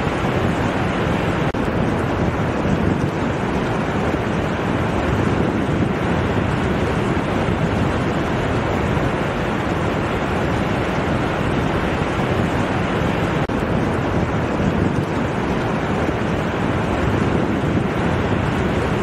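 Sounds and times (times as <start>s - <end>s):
small waves breaking on sand: 0.0s - 19.0s
wind on microphone: 0.0s - 19.0s.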